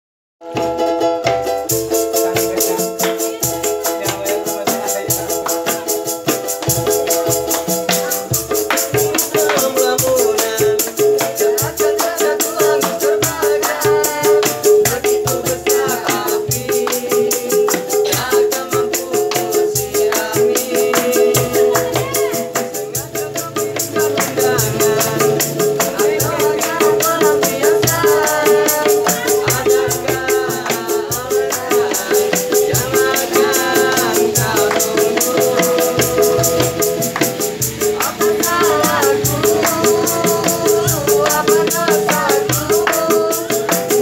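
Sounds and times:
hand drums: 0:00.4 - 0:44.0
ukulele strumming: 0:00.5 - 0:04.6
people singing: 0:01.3 - 0:44.0
tambourine jangle: 0:01.4 - 0:44.0.

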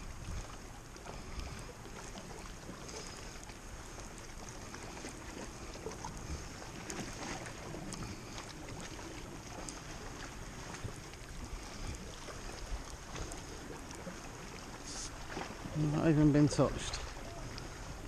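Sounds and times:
wind on microphone: 0:00.0 - 0:01.7
water lapping at shore: 0:00.0 - 0:18.0.

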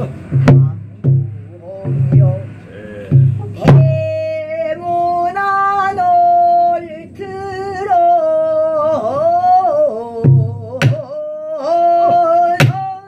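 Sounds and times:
barrel drum strike: 0:00.0 - 0:04.1, 0:12.1 - 0:13.0
woman singing long notes: 0:03.3 - 0:13.0.

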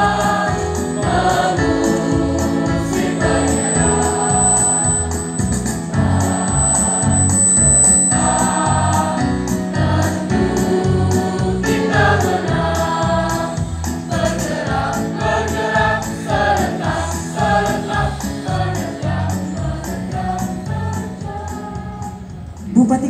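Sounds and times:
choir singing: 0:00.0 - 0:22.2.

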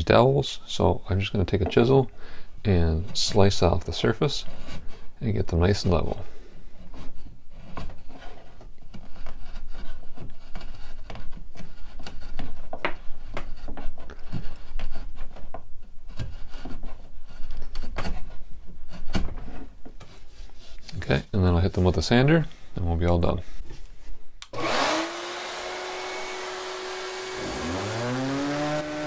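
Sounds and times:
chisel slicing and scraping wood: 0:03.0 - 0:06.2, 0:06.8 - 0:21.2, 0:24.7 - 0:29.0.

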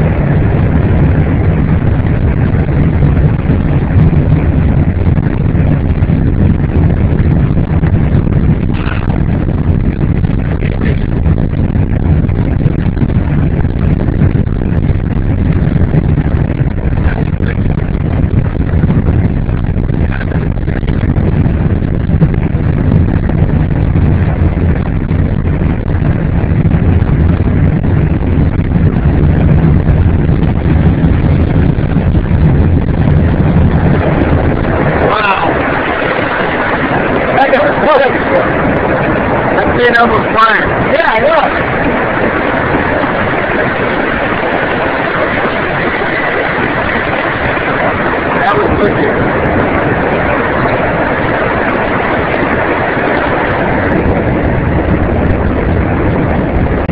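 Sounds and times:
aircraft engine and airflow drone: 0:00.0 - 0:56.9.

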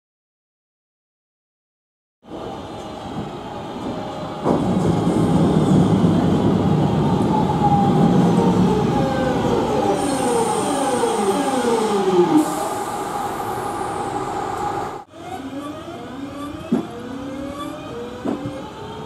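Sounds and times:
train wheels and running gear: 0:02.3 - 0:07.4, 0:16.2 - 0:19.0
traction motors whining: 0:07.1 - 0:19.0.

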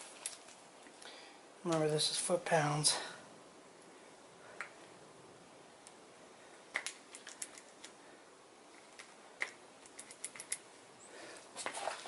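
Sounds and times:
small metal tools clicking: 0:06.8 - 0:07.9, 0:09.0 - 0:10.6.

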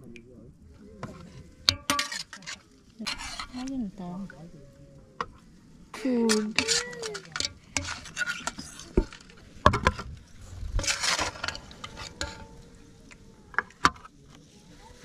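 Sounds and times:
metal ladle clinking in pot: 0:01.7 - 0:03.7, 0:06.3 - 0:09.2, 0:10.8 - 0:12.7.

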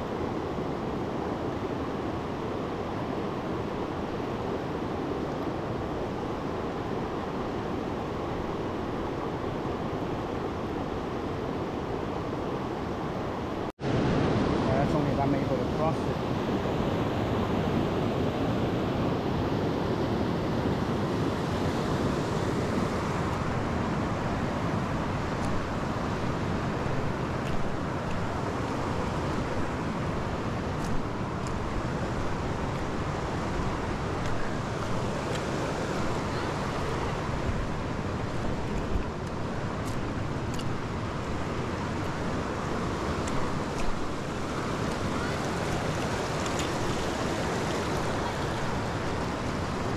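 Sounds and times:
river rapids rushing over rocks: 0:21.0 - 0:49.9.

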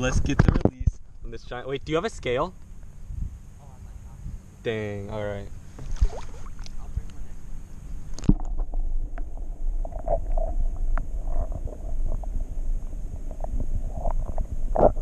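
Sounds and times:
muffled underwater rumble: 0:05.1 - 0:15.0
underwater clicks and gurgles: 0:05.8 - 0:07.1, 0:08.1 - 0:15.0.

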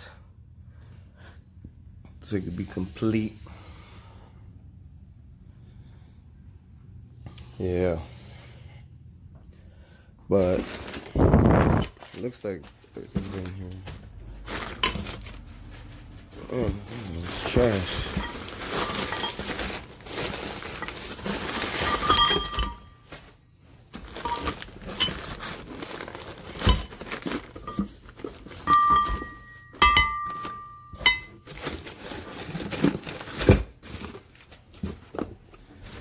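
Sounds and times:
plastic bag of hardware handled: 0:10.3 - 0:36.0
packing paper crumpling: 0:10.4 - 0:28.7, 0:31.4 - 0:36.0
short metallic rings: 0:21.8 - 0:23.0, 0:28.6 - 0:31.4.

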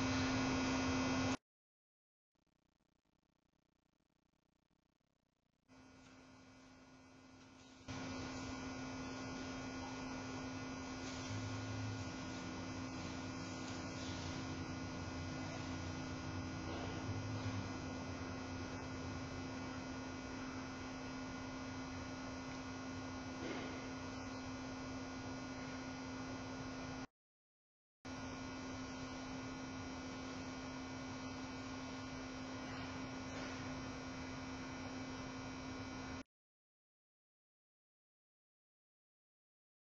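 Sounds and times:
electrical hum and hiss: 0:00.0 - 0:01.4, 0:05.7 - 0:27.0, 0:28.1 - 0:36.2.

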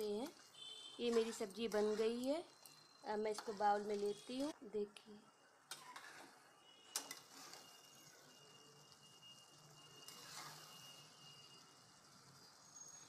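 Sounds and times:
wet stirring: 0:00.3 - 0:04.4
spatula scraping steel pan: 0:01.0 - 0:02.3, 0:03.3 - 0:04.2, 0:10.0 - 0:11.0.

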